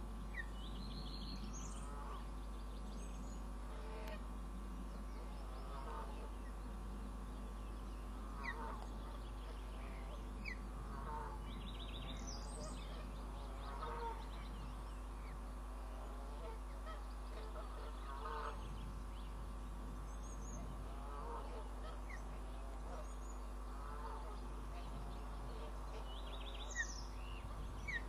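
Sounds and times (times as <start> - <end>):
steady hum: 0.0 - 28.0
small birds high chirps: 0.2 - 3.5, 7.4 - 15.5, 24.2 - 28.0
osprey chirping calls: 27.8 - 28.0.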